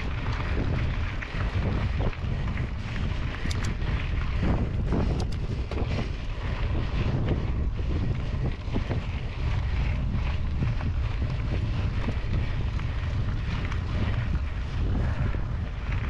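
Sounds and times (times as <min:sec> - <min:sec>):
bike tyres rolling on gravel: 0:00.0 - 0:16.0
wind buffeting microphone: 0:00.0 - 0:16.0
sharp ticks: 0:03.3 - 0:03.9, 0:05.1 - 0:05.8.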